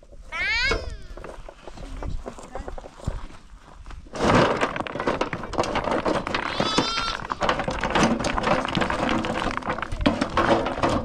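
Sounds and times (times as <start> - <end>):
knocks and clatter: 4.1 - 11.0
farm animal bleating: 6.5 - 7.4.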